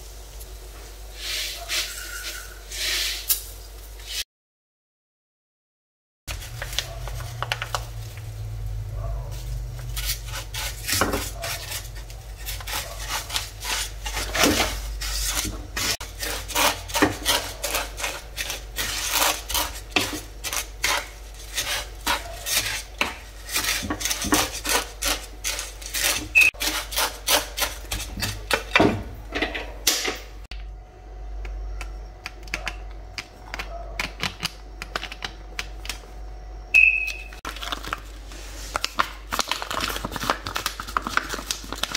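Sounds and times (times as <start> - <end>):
wooden spatula scraping frying pan: 1.1 - 3.3, 9.3 - 28.7.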